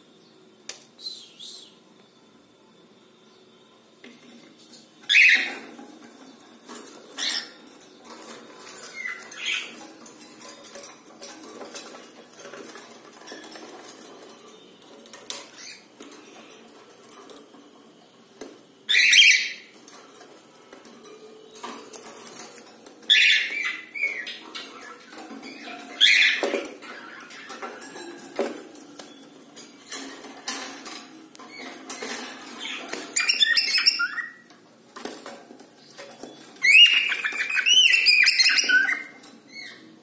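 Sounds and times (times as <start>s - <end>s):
shrill bird calls: 1.0s - 1.8s, 18.9s - 19.7s, 33.2s - 34.4s, 36.6s - 39.8s
claws and wings on wire mesh: 5.1s - 18.6s.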